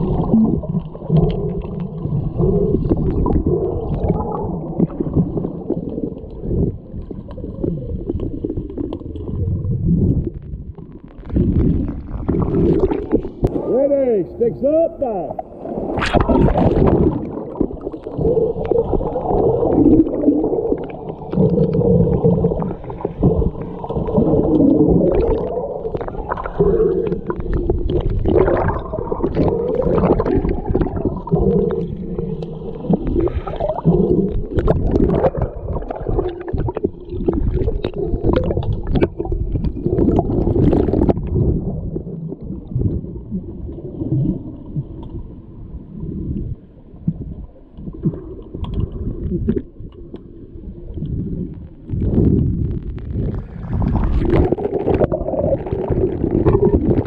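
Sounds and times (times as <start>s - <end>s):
muffled underwater gurgling: 0.0s - 57.0s.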